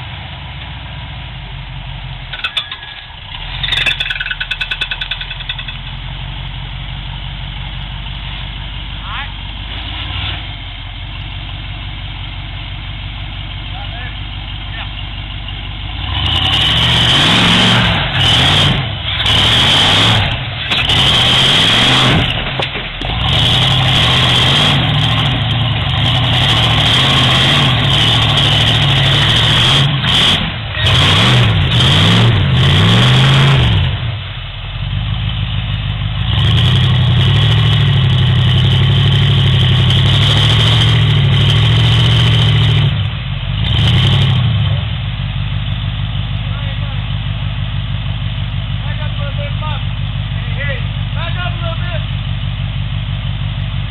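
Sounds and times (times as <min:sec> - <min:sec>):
buggy engine revving hard: 0:09.6 - 0:10.6, 0:15.8 - 0:34.2, 0:36.1 - 0:45.6.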